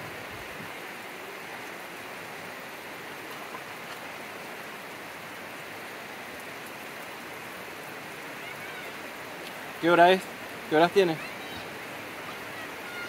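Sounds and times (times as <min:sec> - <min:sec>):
steady rain falling: 0:00.0 - 0:13.0.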